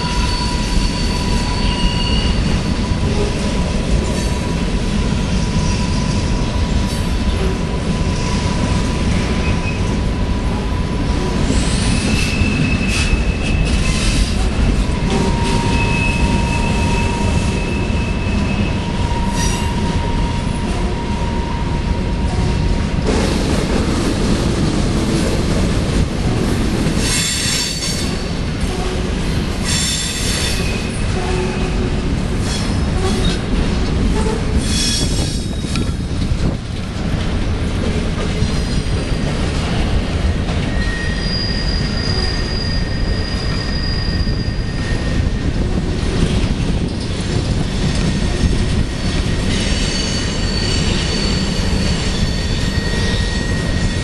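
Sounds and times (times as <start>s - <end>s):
train wheels squealing: 0.0s - 4.6s, 5.2s - 9.9s, 10.8s - 22.7s, 27.0s - 28.4s, 29.5s - 31.8s, 32.4s - 33.5s, 34.2s - 36.0s, 40.5s - 54.0s
train wheels rumbling on rail: 0.0s - 54.0s.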